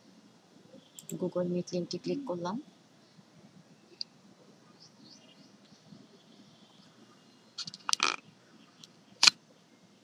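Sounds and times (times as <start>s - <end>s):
faint room noise: 0.0s - 10.0s
sharp clicks: 1.0s - 1.2s.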